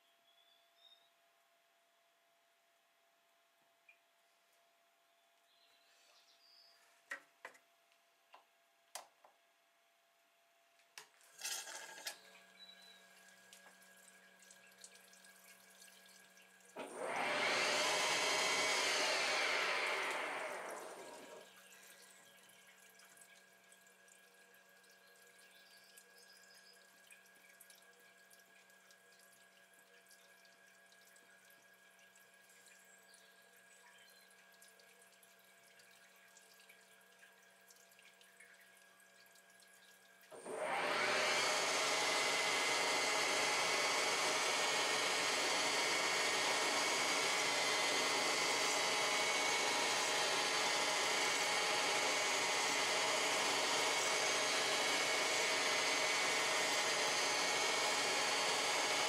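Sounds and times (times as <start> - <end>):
coolant trickling: 11.1 - 16.8, 20.9 - 40.4
loud rushing of cutting tool: 16.8 - 21.4, 40.4 - 59.0
lathe spindle hum: 16.8 - 21.5, 40.3 - 59.0.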